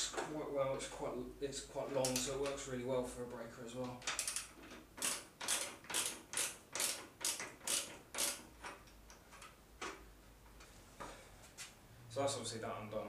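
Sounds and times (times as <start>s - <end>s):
ratchet wrench clicking: 4.1s - 8.5s.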